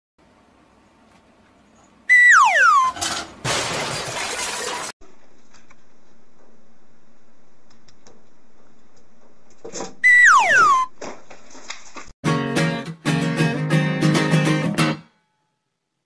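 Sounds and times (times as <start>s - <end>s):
cartoon falling whistle: 2.1s - 3.0s, 10.0s - 10.9s.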